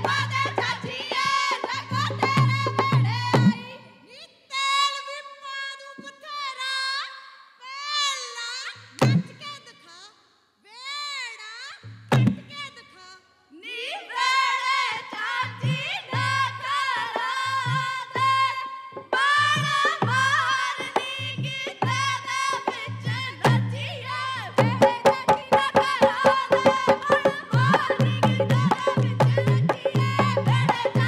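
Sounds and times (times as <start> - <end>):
women singing: 0.0 - 10.1, 12.5 - 31.0
hand drum beat: 24.6 - 31.0.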